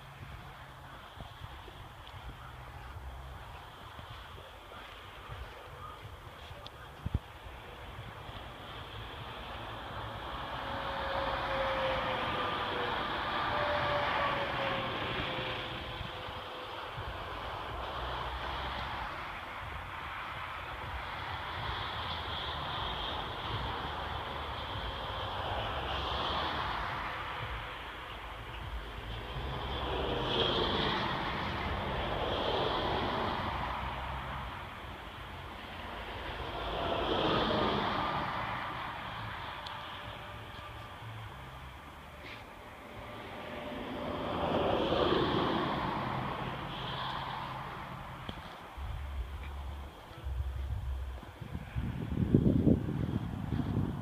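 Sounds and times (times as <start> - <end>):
vehicle passing road noise: 0.0 - 54.0.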